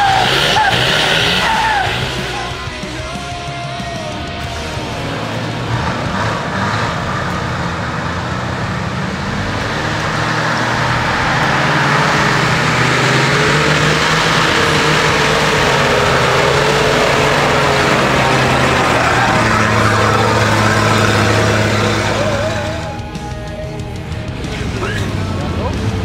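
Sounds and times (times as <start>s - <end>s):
steady whine: 0.0s - 26.0s
vehicle engine under load: 0.0s - 26.0s.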